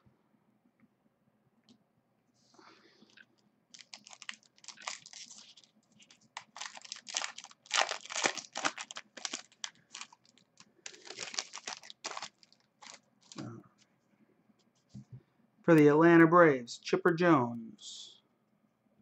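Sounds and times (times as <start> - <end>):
foil wrapper crinkling and tearing: 3.7 - 13.4.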